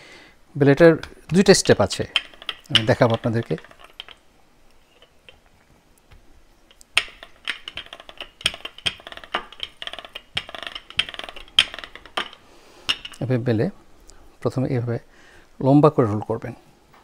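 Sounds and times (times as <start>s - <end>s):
rolling pin knocking: 0.9s - 4.2s, 6.1s - 13.2s.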